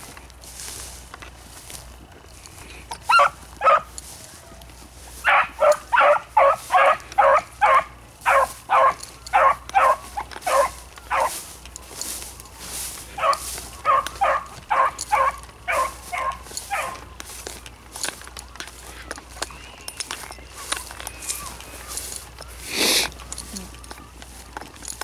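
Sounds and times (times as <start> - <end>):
dogs barking: 3.0 - 17.5.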